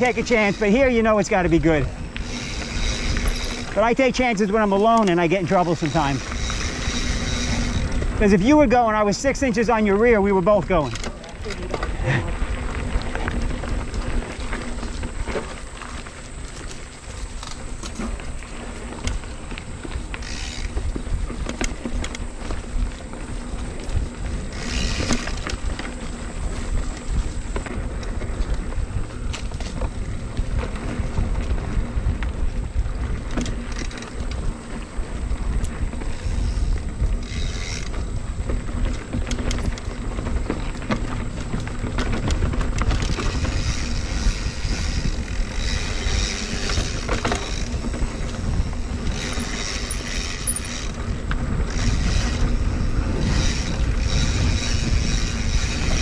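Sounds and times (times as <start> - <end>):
bike clattering over dirt: 0.0 - 56.0
wind rumble on microphone: 0.0 - 56.0.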